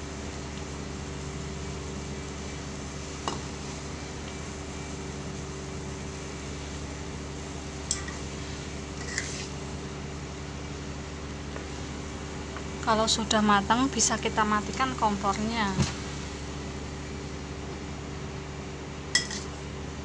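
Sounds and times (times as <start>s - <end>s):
steady background hum: 0.0s - 20.0s
metal spatula clinking on wok: 19.2s - 19.5s.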